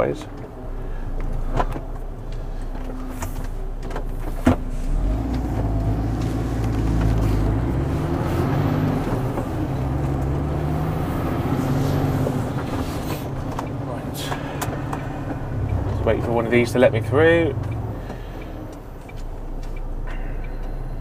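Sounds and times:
lorry diesel engine revving: 4.2 - 19.1.

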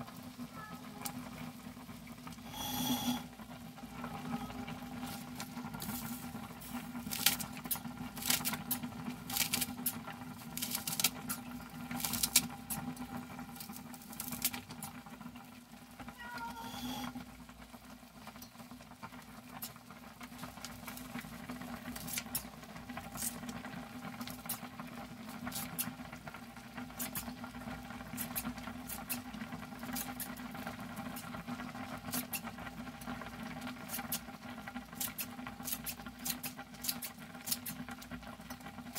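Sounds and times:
scissors snipping green onion: 7.1 - 11.3, 28.2 - 29.2, 29.8 - 30.4, 35.0 - 37.9.

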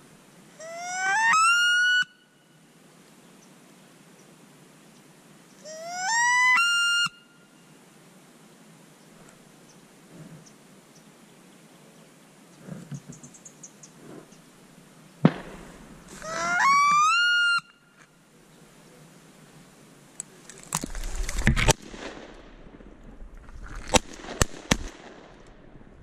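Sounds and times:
shotgun shots: 15.2 - 16.1, 21.5 - 22.9, 23.8 - 25.4.

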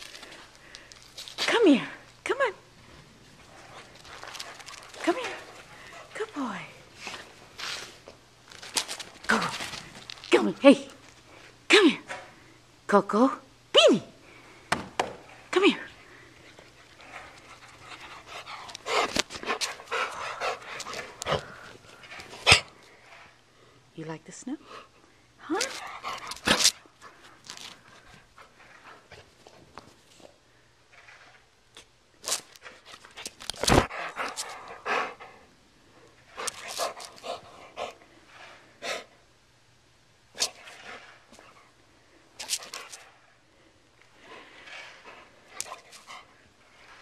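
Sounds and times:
dog panting: 16.2 - 23.0, 33.8 - 35.5
dog panting and sniffing: 16.2 - 23.3, 25.6 - 30.4, 32.6 - 35.5, 36.1 - 39.2, 42.4 - 43.3, 44.2 - 47.0.

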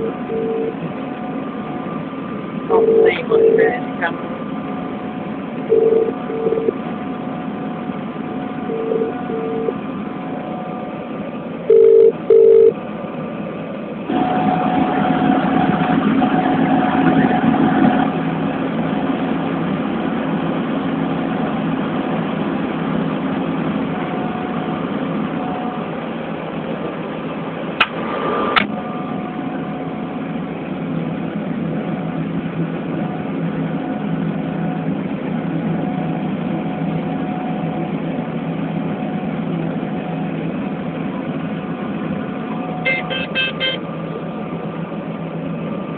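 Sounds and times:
combine harvester engine drone: 0.0 - 45.9
short loud beeps: 42.8 - 43.8.

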